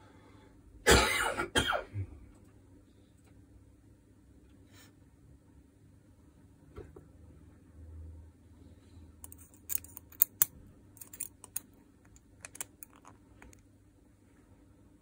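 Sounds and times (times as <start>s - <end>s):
metal clicks and scrapes: 9.2s - 13.6s.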